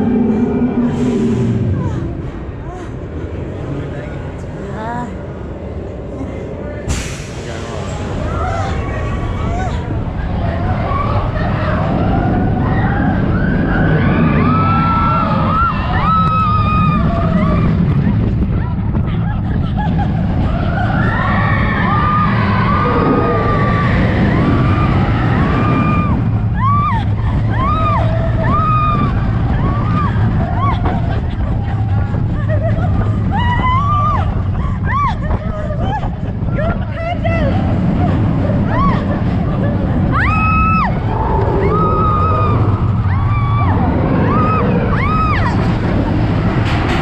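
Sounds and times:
roller coaster train rumbling: 0.0s - 47.0s
riders screaming: 20.5s - 31.3s, 40.1s - 45.8s.

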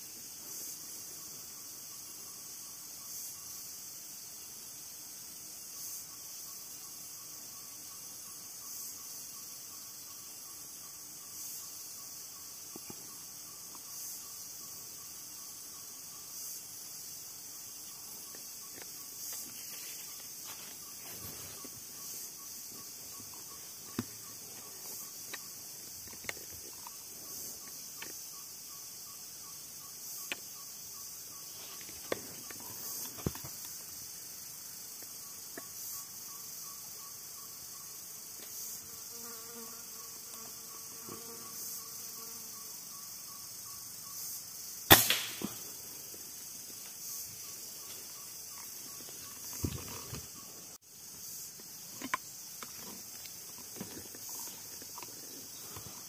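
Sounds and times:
insects chirring: 0.0s - 56.0s
air rifle shot: 44.9s - 45.6s.

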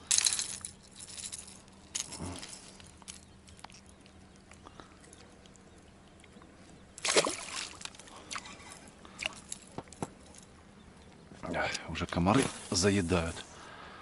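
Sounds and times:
fish splashing into water: 7.0s - 8.4s.

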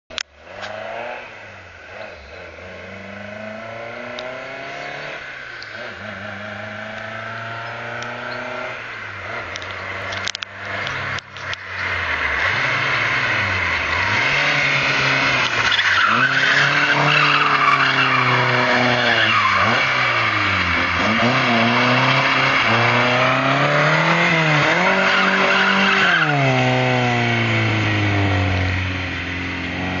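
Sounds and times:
car engine revving: 0.1s - 30.0s
tyres squealing: 15.0s - 26.5s.

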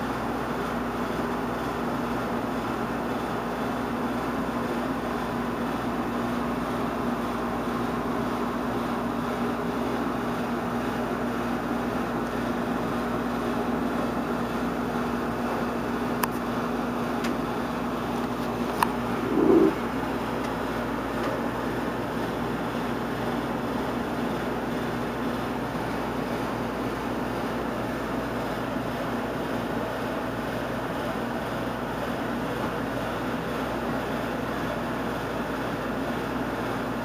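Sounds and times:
machine hum: 14.6s - 22.2s
even hiss: 19.2s - 19.8s.

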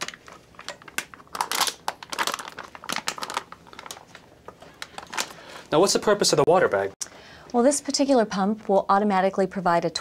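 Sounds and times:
plastic bag crinkling: 0.0s - 6.0s.

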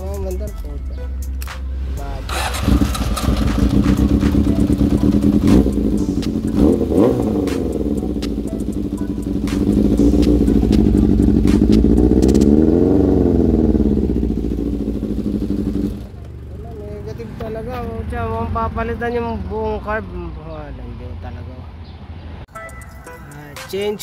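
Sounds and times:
motorcycle engine idling and revving: 1.8s - 20.3s.

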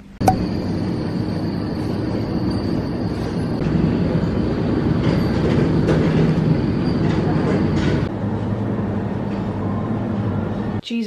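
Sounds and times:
thin high whine: 0.0s - 3.6s.

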